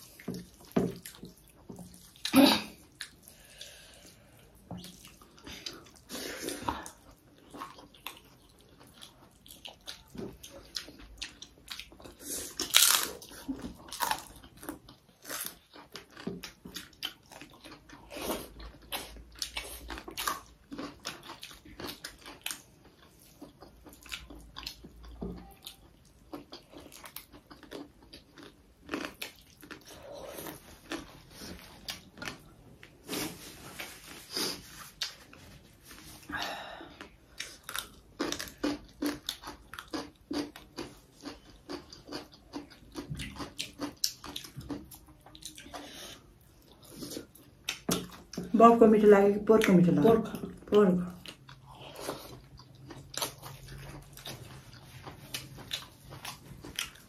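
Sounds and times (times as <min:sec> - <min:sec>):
chewing crunches and mouth smacks: 0:04.6 - 0:33.2, 0:37.0 - 0:48.5, 0:50.6 - 0:57.0.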